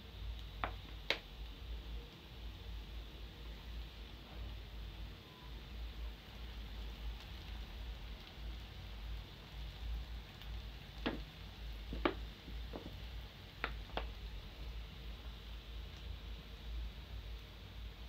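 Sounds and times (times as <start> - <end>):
dough sizzling in hot oil: 0.0 - 18.0
oil popping: 6.4 - 16.2.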